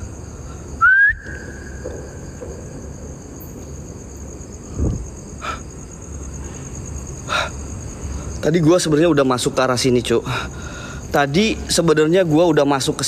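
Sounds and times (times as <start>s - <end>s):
crickets trilling: 0.0s - 13.0s
low thump: 1.2s - 3.8s.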